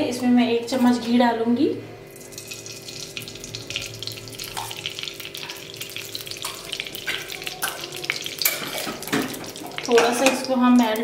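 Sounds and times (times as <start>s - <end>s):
ghee sizzling and crackling: 2.1s - 11.0s.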